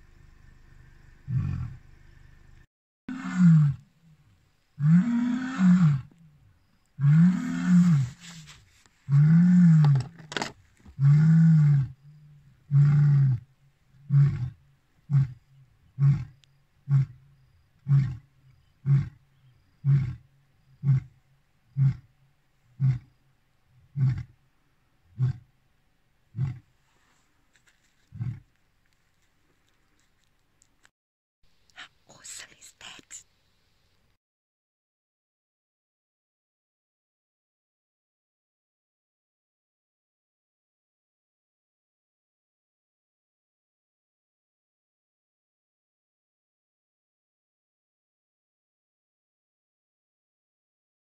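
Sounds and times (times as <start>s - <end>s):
lion grunting: 0.8s - 2.3s, 7.0s - 8.3s, 19.8s - 20.2s, 20.8s - 22.1s, 23.9s - 24.4s, 25.1s - 25.5s, 26.3s - 26.7s, 28.1s - 28.5s
lion roaring: 1.1s - 2.2s, 3.1s - 3.8s, 4.8s - 6.1s, 7.0s - 8.2s, 9.1s - 10.1s, 11.0s - 12.0s, 12.7s - 15.4s, 16.0s - 17.2s, 17.8s - 19.2s, 19.8s - 20.2s, 20.8s - 22.1s, 22.8s - 23.2s, 23.9s - 24.4s, 25.1s - 25.5s, 26.3s - 26.7s, 28.1s - 28.5s.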